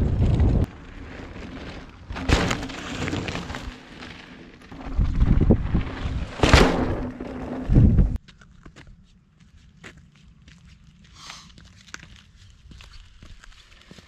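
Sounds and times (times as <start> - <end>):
wind rumble on microphone: 0.0 - 0.7, 4.7 - 8.2
bike tyres rolling over dirt: 0.0 - 8.8, 10.0 - 14.0.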